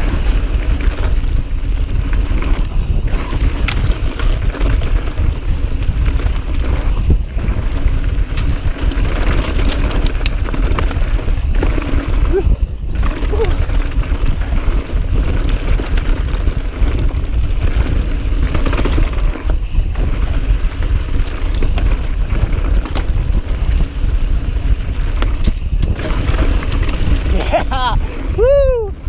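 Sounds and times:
bike clicking and rattling: 0.0s - 29.0s
bike tyres rolling on dirt: 0.0s - 29.0s
wind rumbling on microphone: 0.0s - 29.0s.

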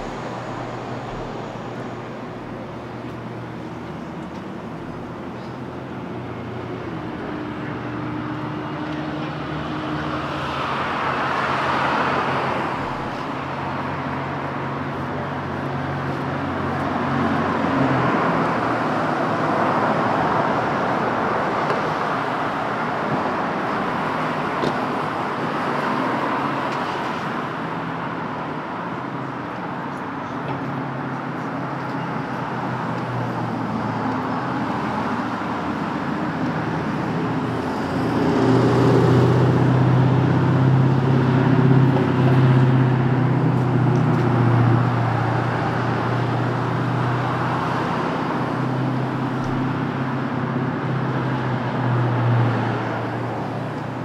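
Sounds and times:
low engine hum: 0.0s - 25.3s
cars passing: 0.0s - 54.0s.

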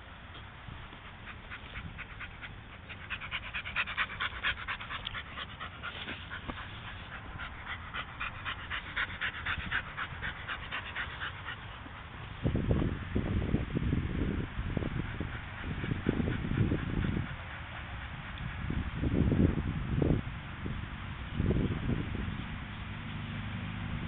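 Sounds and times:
dog panting: 0.8s - 12.4s, 14.8s - 18.7s.

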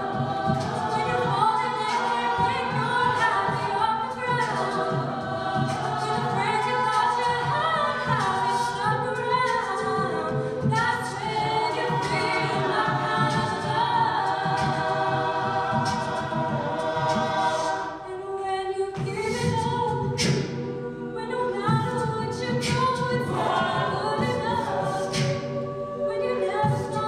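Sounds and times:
woman singing into a microphone: 0.0s - 27.0s
backing singers holding chords: 9.8s - 18.1s, 23.2s - 27.0s.

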